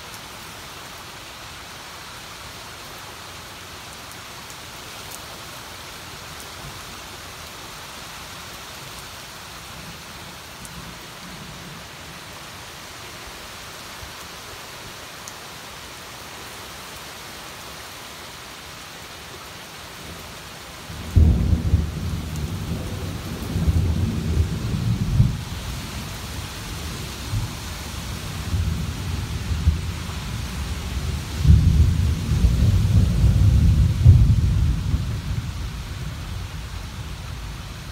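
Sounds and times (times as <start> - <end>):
rain on foliage and stone: 0.0 - 37.9
thunder rumbling: 21.0 - 25.5, 31.0 - 36.3.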